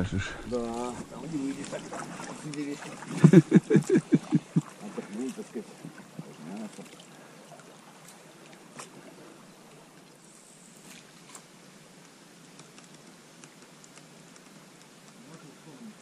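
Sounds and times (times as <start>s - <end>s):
water hissing: 0.0s - 7.2s.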